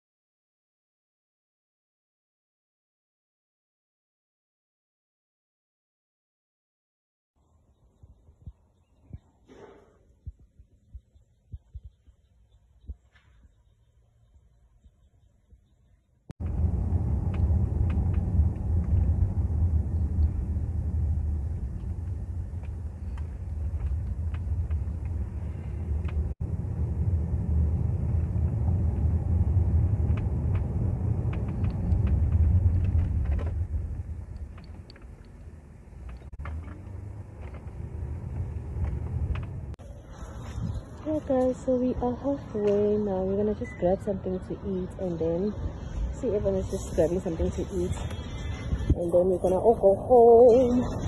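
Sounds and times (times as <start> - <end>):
car cabin road and engine rumble: 16.4 - 39.8.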